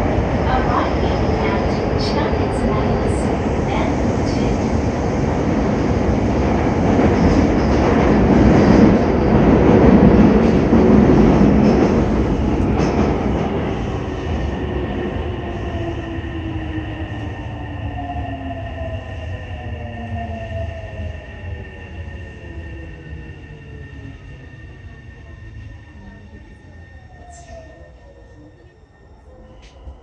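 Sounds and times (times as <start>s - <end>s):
subway train rolling noise: 0.0s - 30.0s.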